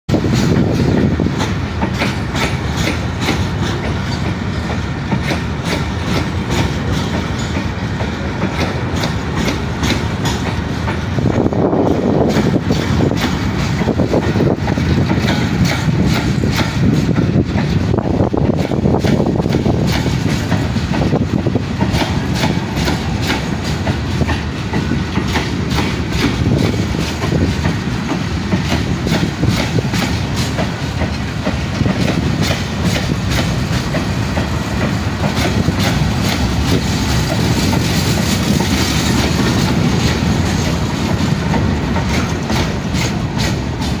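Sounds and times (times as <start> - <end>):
clanks over rail joints: 0.1 - 44.0
freight train wheels rumbling: 0.1 - 44.0.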